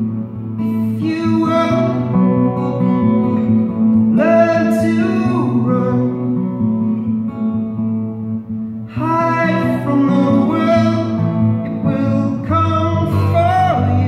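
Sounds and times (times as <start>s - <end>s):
acoustic guitar: 0.0s - 14.0s
man singing: 0.6s - 2.4s, 4.0s - 6.6s, 8.9s - 14.0s.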